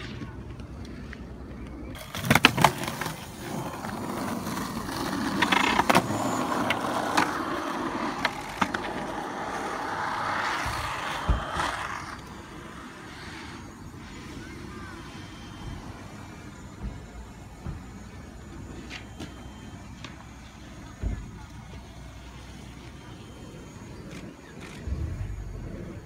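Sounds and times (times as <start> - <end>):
skateboard wheels rolling on pavement: 0.0 - 26.0
skateboard sharp clacks: 2.0 - 12.3.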